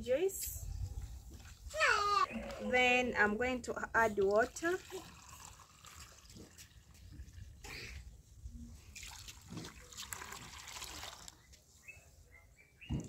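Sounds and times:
water trickling into cup: 0:04.1 - 0:07.6, 0:09.0 - 0:11.4.

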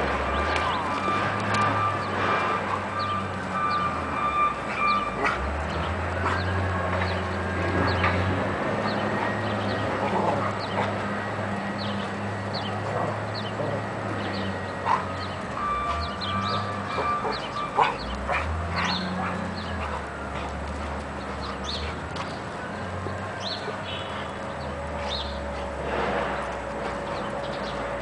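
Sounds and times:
dogs play-fighting and vocalising: 0:04.6 - 0:11.2, 0:12.5 - 0:22.4.

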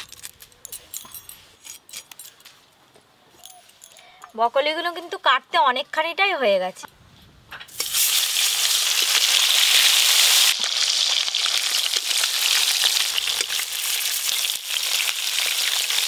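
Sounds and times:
fish frying in hot oil: 0:07.7 - 0:16.0.

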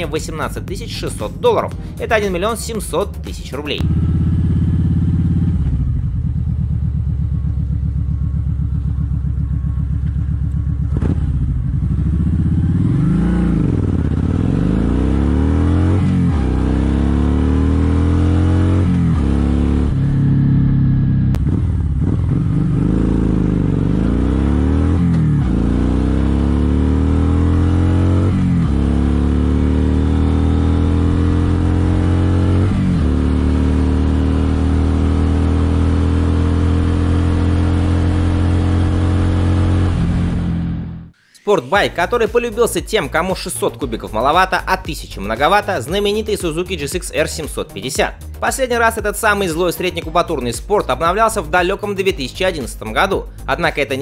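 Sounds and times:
motorcycle engine accelerating: 0:00.0 - 0:41.2.

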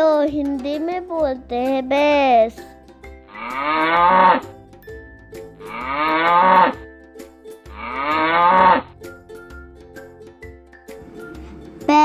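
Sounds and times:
faint background music: 0:00.0 - 0:12.0
buffalo mooing: 0:03.3 - 0:04.5, 0:05.6 - 0:06.8, 0:07.7 - 0:08.9.

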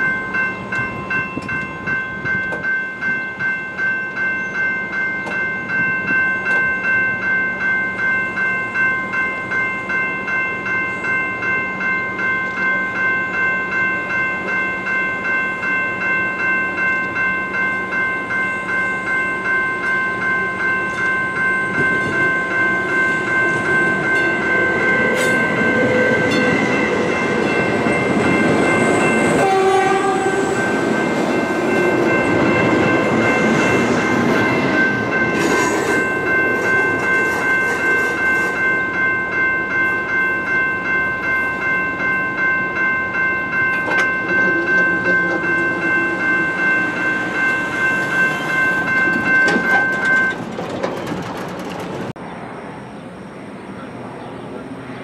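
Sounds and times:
crossing bell ringing: 0:00.0 - 0:55.0
passenger train passing: 0:00.0 - 0:55.0
train horn blast: 0:29.4 - 0:30.8.

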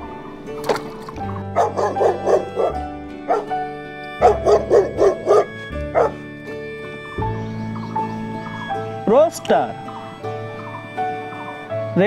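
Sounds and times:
dog barking: 0:01.6 - 0:03.6, 0:04.2 - 0:06.2.

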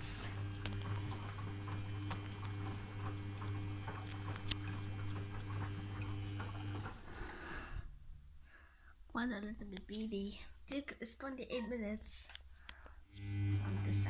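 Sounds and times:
washing machine motor hum: 0:00.0 - 0:08.1, 0:13.1 - 0:14.0.

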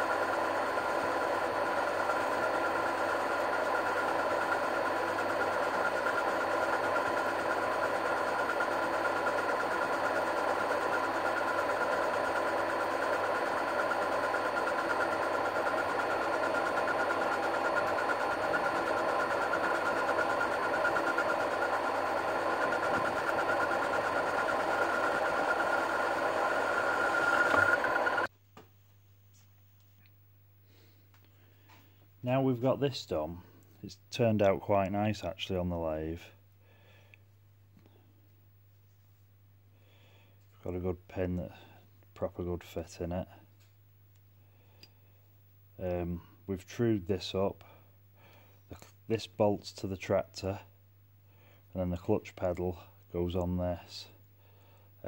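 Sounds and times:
lathe tool cutting steel: 0:00.0 - 0:28.3
metal lathe motor whine: 0:00.0 - 0:28.3.

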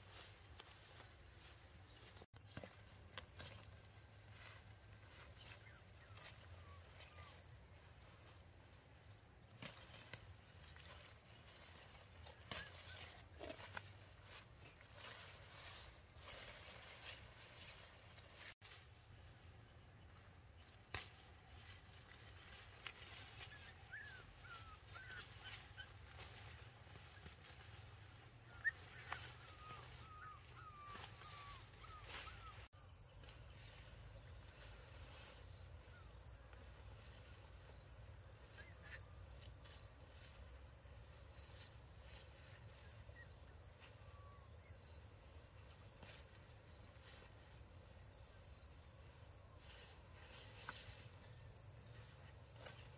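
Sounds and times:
insects trilling: 0:00.0 - 0:52.9
small squeaky calls: 0:23.4 - 0:26.0.

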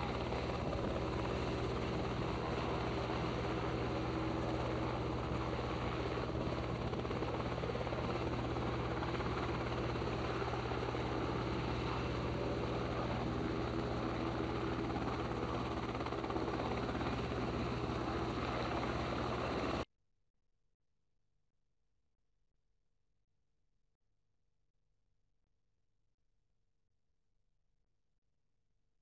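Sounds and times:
helicopter engine and rotor drone: 0:00.0 - 0:19.9.

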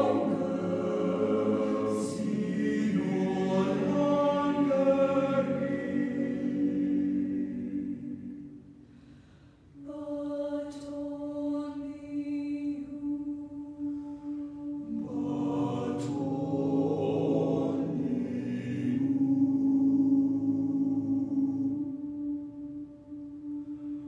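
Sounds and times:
choir singing sustained chords: 0:00.0 - 0:24.0.

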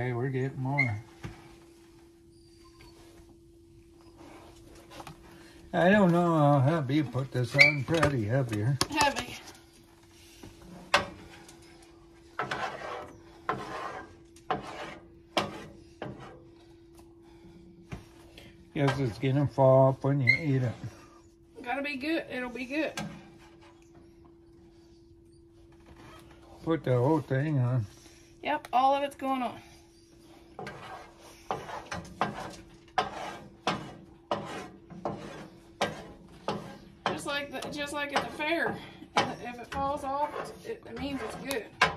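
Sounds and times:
spatula scraping food in a pan: 0:12.4 - 0:16.5, 0:30.4 - 0:41.9.

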